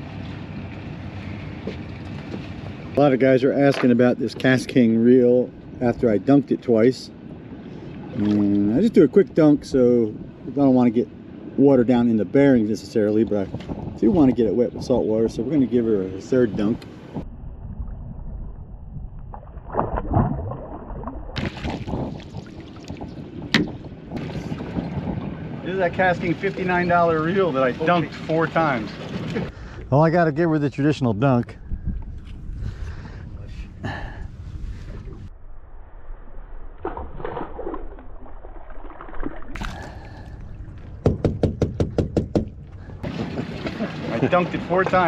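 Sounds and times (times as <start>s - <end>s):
water splashing and dripping: 19.2s - 23.4s, 36.8s - 41.0s, 43.0s - 45.0s.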